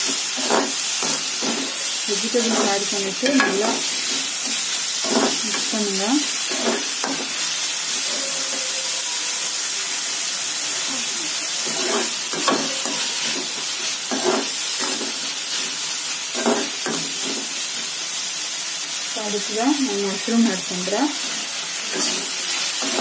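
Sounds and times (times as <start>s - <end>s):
spatula scraping a pan: 0.0s - 8.7s, 11.6s - 17.6s, 21.2s - 23.0s
vegetables sizzling in a pan: 0.0s - 23.0s.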